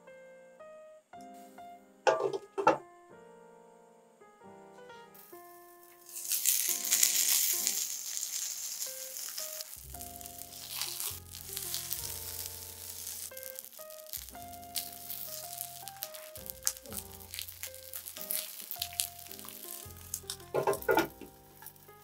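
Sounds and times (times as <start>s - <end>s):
gentle piano music: 0.0s - 22.0s
tofu sizzling in a frying pan: 6.0s - 22.0s.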